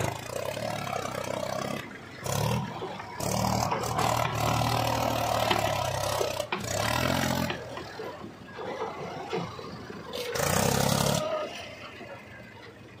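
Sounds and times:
tractor diesel engine revving: 0.0 - 12.9.

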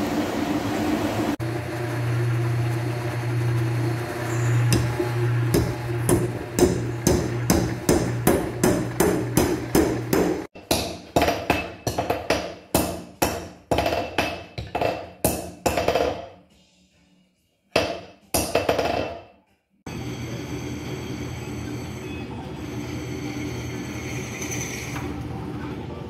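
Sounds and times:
power hammer drive hum: 0.0 - 10.5
steady mechanical noise: 0.0 - 10.5
power hammer pounding hot iron: 1.3 - 15.5.

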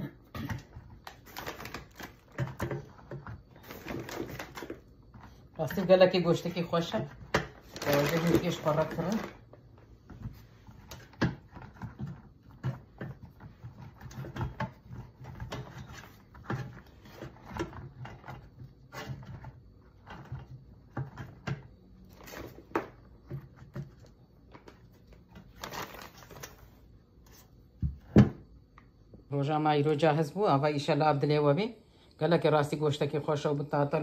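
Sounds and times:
plastic bag rustling: 0.9 - 9.6, 25.3 - 26.8.

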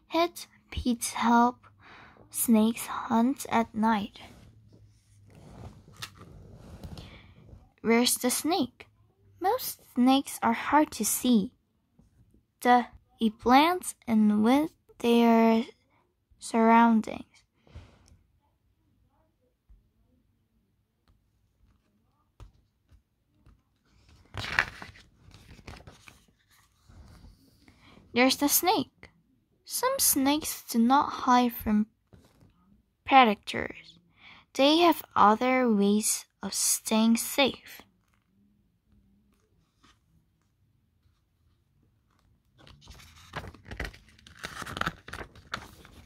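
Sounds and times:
paper page turning: 5.3 - 7.2, 23.4 - 27.4, 42.1 - 46.0
paper page snapping: 43.1 - 45.7.

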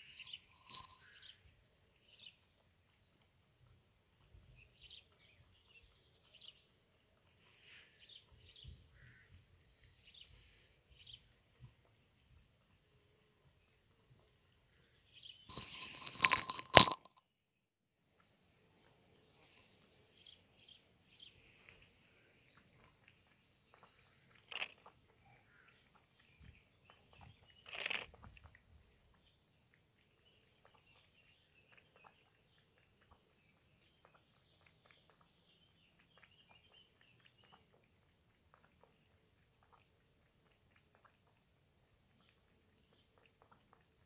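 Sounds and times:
cat lapping milk: 22.4 - 44.0.

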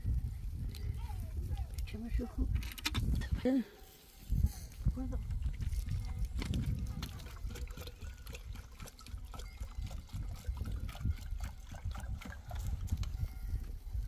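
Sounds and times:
wind rumble on microphone: 0.0 - 14.0
water pouring into plastic can: 5.2 - 13.2.

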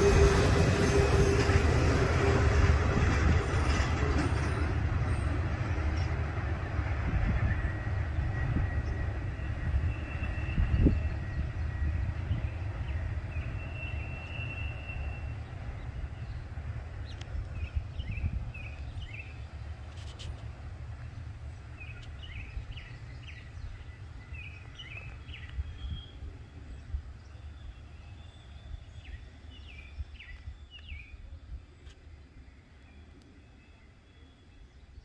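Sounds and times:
freight train rumble: 0.0 - 35.0.

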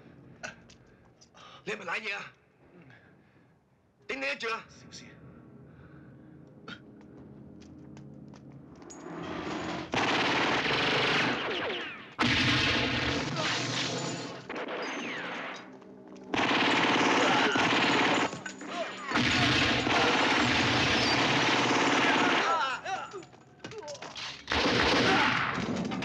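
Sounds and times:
automatic gunfire: 9.9 - 15.4, 16.4 - 18.4, 19.1 - 22.8, 24.5 - 25.7.

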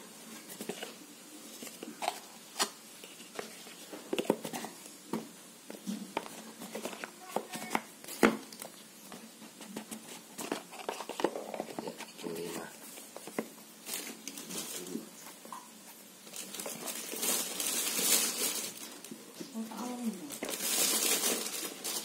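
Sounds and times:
cardboard rustling scrape: 9.5 - 15.1.

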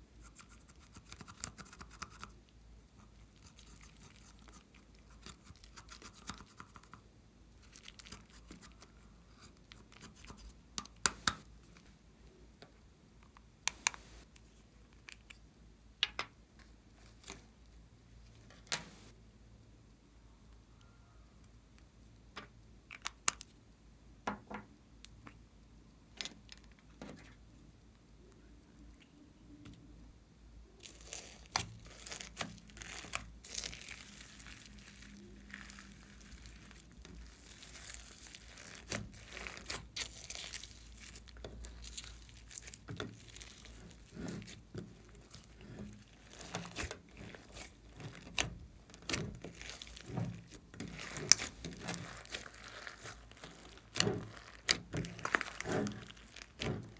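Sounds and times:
slime crackling and popping: 30.8 - 56.9.

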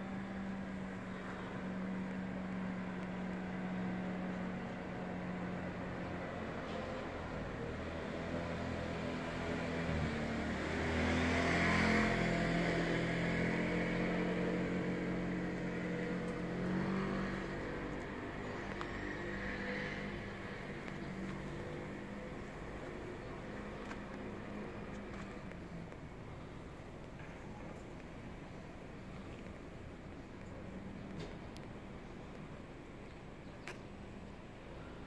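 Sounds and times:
vehicle engine running: 7.7 - 32.8.

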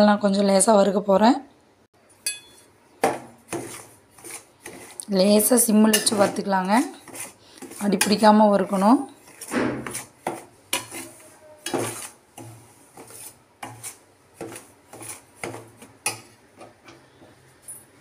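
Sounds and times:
spoon scraping a steel pan: 2.2 - 17.8.

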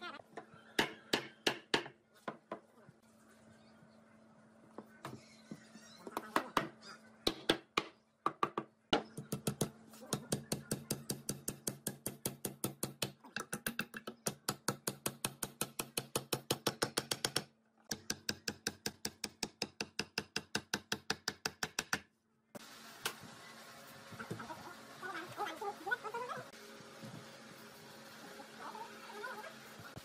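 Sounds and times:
hammer striking wood: 0.8 - 2.0.

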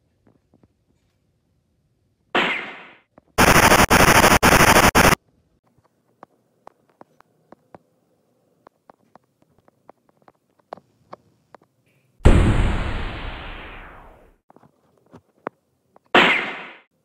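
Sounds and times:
machine-gun fire: 3.4 - 5.2, 12.2 - 14.2
explosion blast: 12.2 - 14.3.

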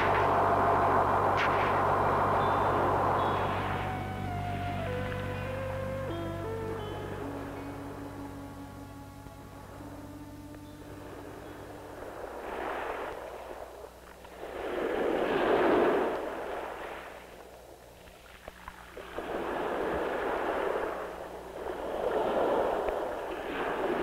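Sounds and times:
small waves washing on beach: 0.0 - 3.9, 10.9 - 24.0.

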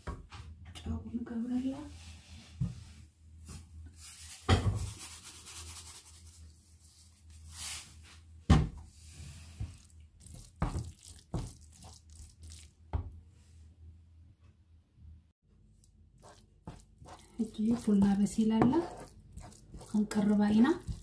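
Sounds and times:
wooden spatula scraping frying pan: 16.2 - 21.0.

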